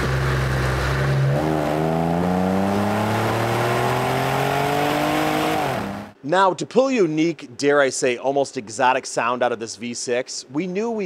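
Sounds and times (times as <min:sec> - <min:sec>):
car exhaust accelerating: 0:00.0 - 0:06.2.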